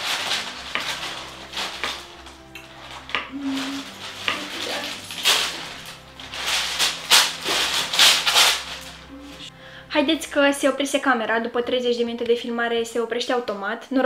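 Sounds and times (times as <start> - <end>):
baking paper rustling and crinkling: 0.0 - 9.5.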